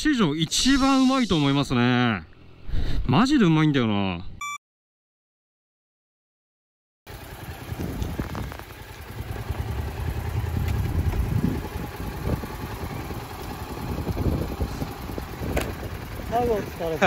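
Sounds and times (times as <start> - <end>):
motorcycle engine low rumble: 7.1 - 17.0.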